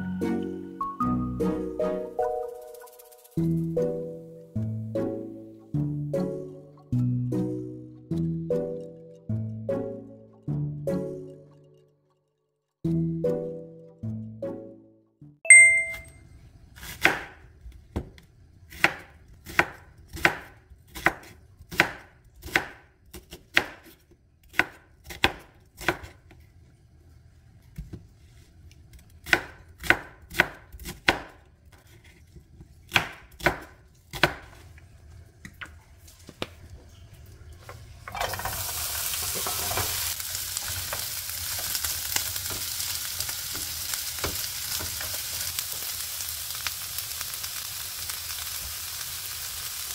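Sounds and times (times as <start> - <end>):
knife slicing onion on board: 16.8 - 17.4, 18.7 - 26.3, 28.9 - 32.2, 32.9 - 34.6
onions sizzling in a pan: 37.6 - 49.9.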